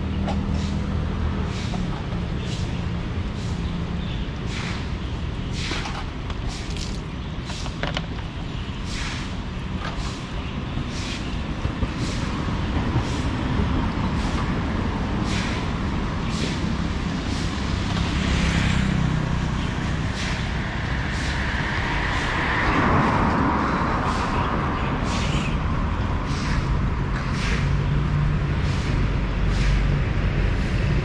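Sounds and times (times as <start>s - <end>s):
rumble of traffic engines: 0.0s - 31.0s
vehicle passing: 13.8s - 31.0s.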